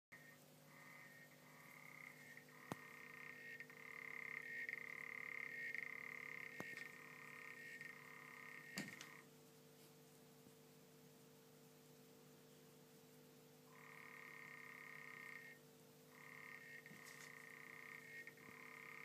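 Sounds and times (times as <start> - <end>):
frog buzzing trill: 0.2 - 9.3, 13.7 - 19.0.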